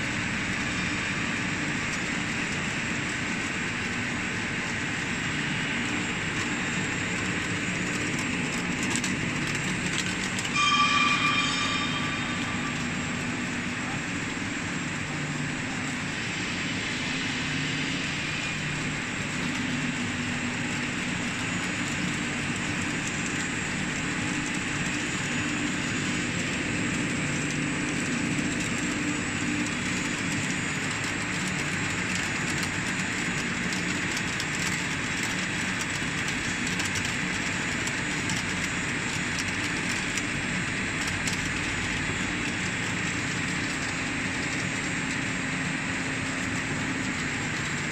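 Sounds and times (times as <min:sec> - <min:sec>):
conveyor chain running: 0:00.0 - 0:47.9
low hum: 0:05.8 - 0:30.4.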